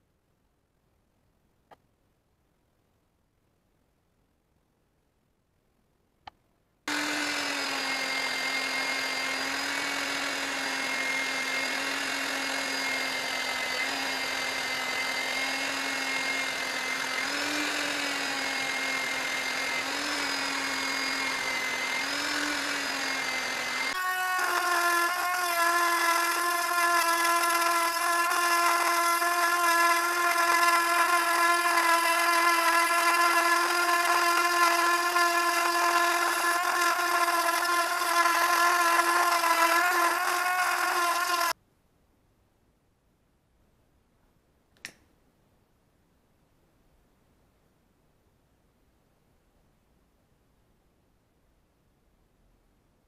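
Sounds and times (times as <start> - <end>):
electric drill with abrasive wheel: 6.9 - 41.6
rotary tool whining: 6.9 - 41.6.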